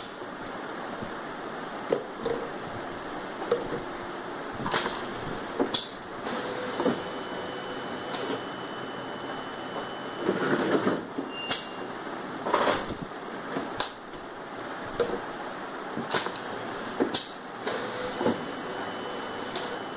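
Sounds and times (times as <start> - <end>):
machine mechanical whir: 2.2 - 13.1, 16.0 - 19.9
thin high whine: 4.2 - 12.1, 16.4 - 19.9.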